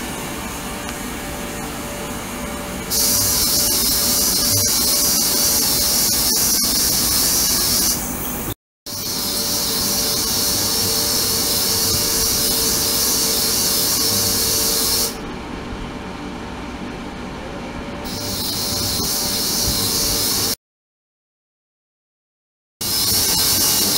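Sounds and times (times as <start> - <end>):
ultrasonic cleaner hissing: 2.9 - 15.2, 18.1 - 20.6, 22.8 - 23.9.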